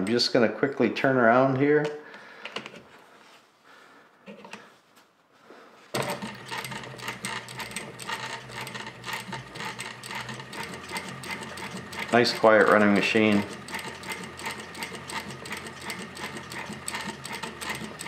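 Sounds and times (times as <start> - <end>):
sewing machine motor hum: 6.0 - 18.0
sewing needle ticking: 6.0 - 18.0.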